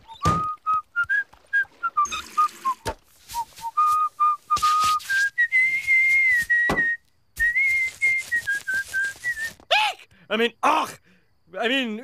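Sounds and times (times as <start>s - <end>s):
man whistling a tune: 0.0s - 9.6s
dull thud: 6.6s - 7.0s.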